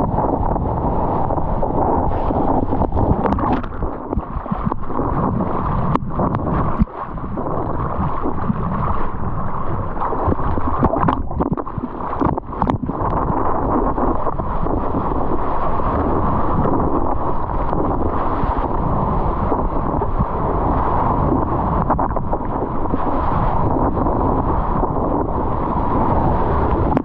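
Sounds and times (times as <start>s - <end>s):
water splashing on camera: 0.0s - 27.0s
wind noise on microphone: 0.0s - 27.0s
water sloshing and splashing: 0.9s - 24.0s.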